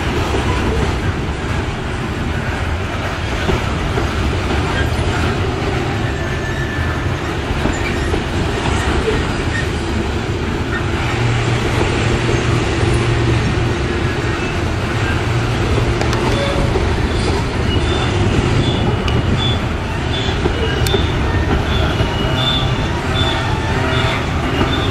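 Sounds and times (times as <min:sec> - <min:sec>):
freight train wheels rumbling on rail: 0:00.0 - 0:24.9
faint wheel squeal: 0:05.9 - 0:09.7.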